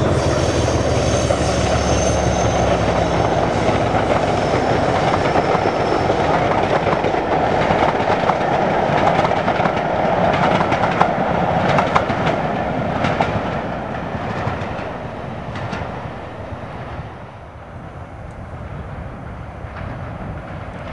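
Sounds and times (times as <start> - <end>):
train wheels clicking over rail joints: 0.0 - 16.1
diesel locomotive engine: 0.0 - 20.9.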